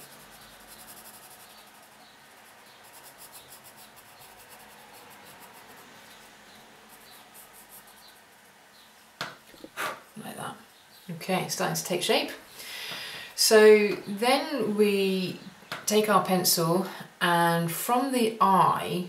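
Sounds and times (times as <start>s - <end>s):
pencil scratching on paper: 0.0s - 8.5s.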